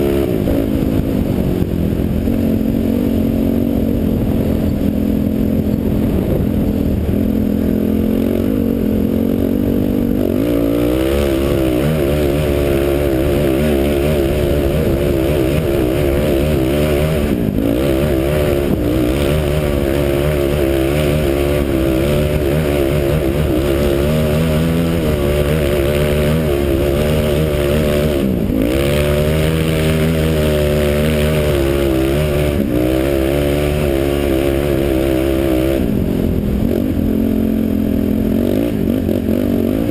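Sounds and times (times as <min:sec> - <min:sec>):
quad engine revving: 0:00.0 - 0:39.9.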